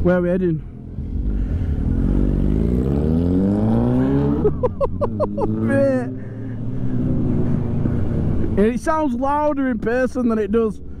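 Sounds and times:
second motorcycle engine: 0.8 - 8.6
motorcycle engine accelerating: 0.8 - 8.8.

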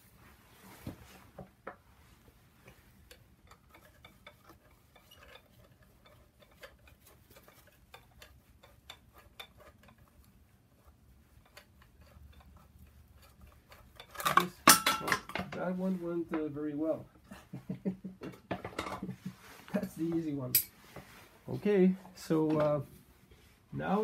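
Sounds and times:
metallic ticking of hand tools: 3.0 - 10.3, 11.4 - 15.4.

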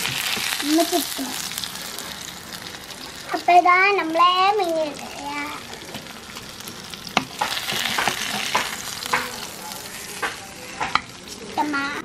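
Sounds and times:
fish sizzling in oil: 0.0 - 12.0
spatula scraping a pan: 7.1 - 11.4.

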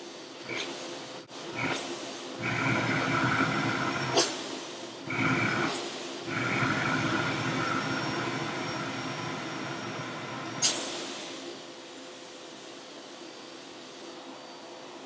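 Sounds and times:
vacuum cleaner motor whine: 2.4 - 4.4, 5.0 - 11.7.

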